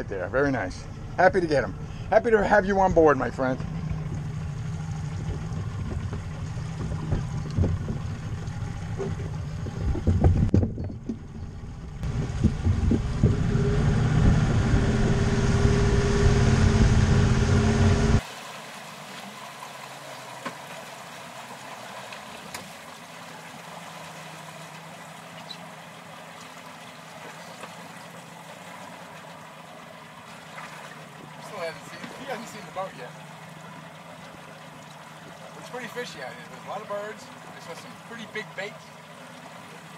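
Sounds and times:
boat engine running: 0.0 - 39.9
water splashing along hull: 0.0 - 39.9.

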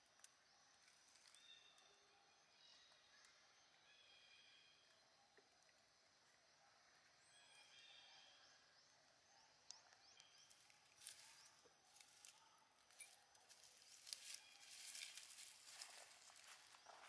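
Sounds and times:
dry leaves rustling: 13.5 - 16.7.

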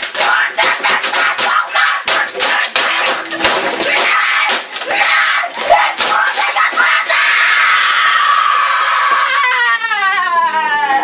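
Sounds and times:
loud banging and crashing: 0.0 - 7.4
boy screaming: 5.0 - 11.0.

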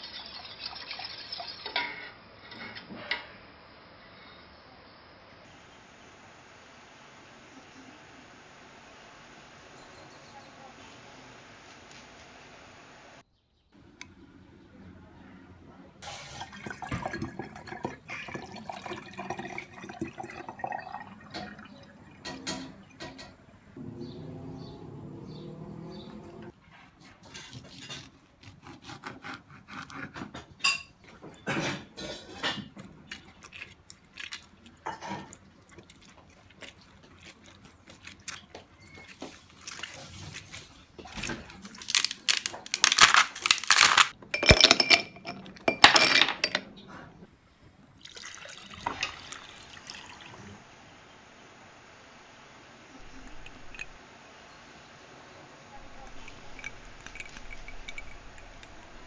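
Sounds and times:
liquid being poured: 16.0 - 23.8, 31.7 - 42.4, 48.0 - 50.6, 53.0 - 54.0, 55.8 - 59.0.

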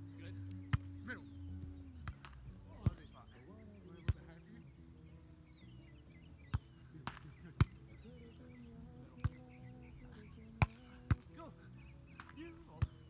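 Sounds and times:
faint bird chirps: 0.0 - 13.0
volleyball slaps: 0.5 - 1.0, 2.0 - 3.1, 4.1 - 4.3, 6.5 - 7.8, 9.1 - 9.5, 10.6 - 11.4, 12.1 - 13.0.

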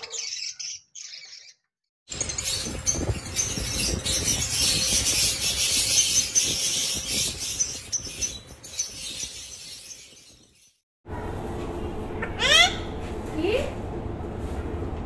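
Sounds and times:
caged birds chattering and chirping: 0.0 - 10.8.

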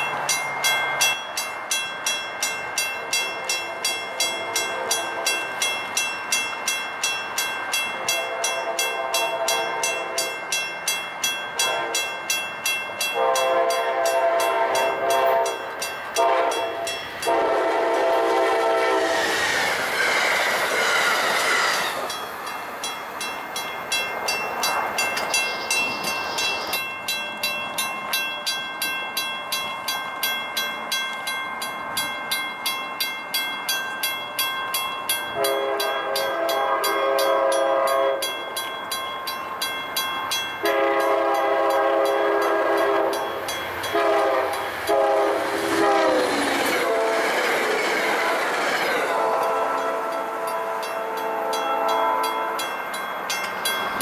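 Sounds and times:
crossing bell dinging: 0.0 - 19.2, 20.7 - 54.0
passing train rushing: 0.0 - 54.0
locomotive horn blasts: 3.3 - 5.4, 8.0 - 10.3, 11.6 - 12.2, 13.1 - 19.3, 35.4 - 38.3, 40.6 - 43.3, 43.9 - 47.5, 49.0 - 52.7.

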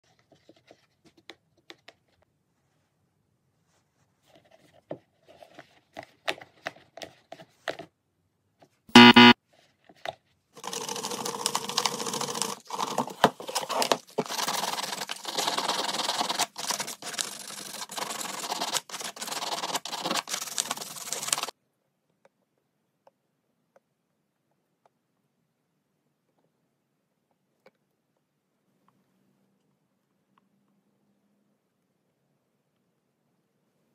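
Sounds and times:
sandpaper scrubbing plastic: 13.4 - 21.5.

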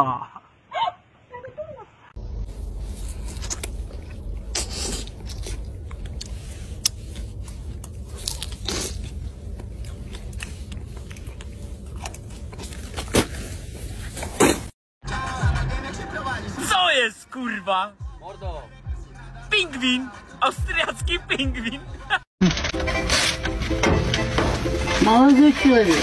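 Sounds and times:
steady low rumble: 2.2 - 14.0
person chewing crunchy food: 2.6 - 13.5.

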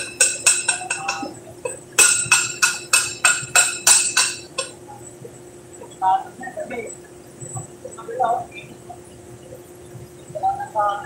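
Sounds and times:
hammer striking steel: 0.0 - 1.3, 2.0 - 4.8.

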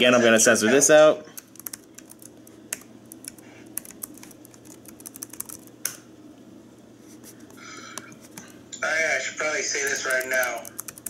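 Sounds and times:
laptop keyboard typing: 1.4 - 6.0, 9.8 - 11.0.

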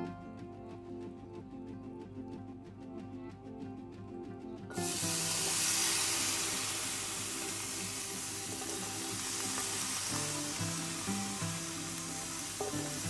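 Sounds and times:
background music: 0.0 - 13.0
capers sizzling in frying pan: 4.8 - 13.0.

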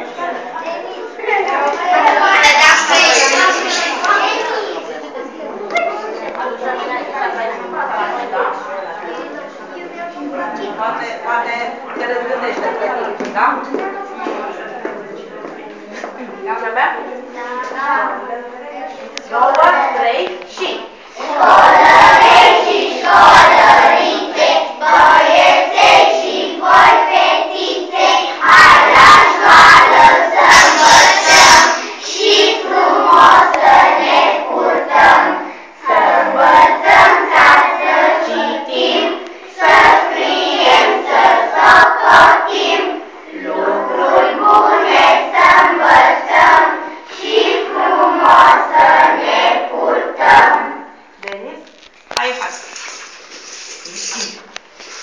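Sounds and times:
children singing: 1.9 - 4.8, 21.2 - 50.9.

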